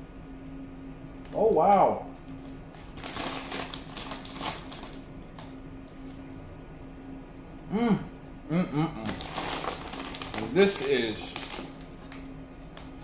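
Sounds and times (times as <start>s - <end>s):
crunchy popcorn being chewed: 2.4s - 5.5s, 9.0s - 13.0s.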